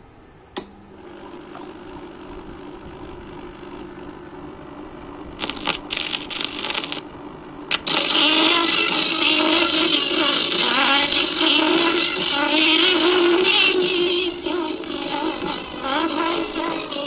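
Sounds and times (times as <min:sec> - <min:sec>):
record player humming: 0:00.0 - 0:17.0
stylus scratching on record: 0:05.4 - 0:07.0, 0:07.7 - 0:17.0.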